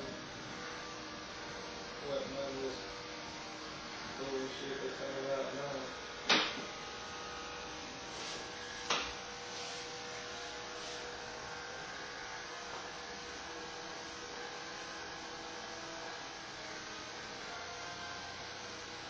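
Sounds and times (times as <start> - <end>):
electric hair clippers humming: 0.0 - 19.0.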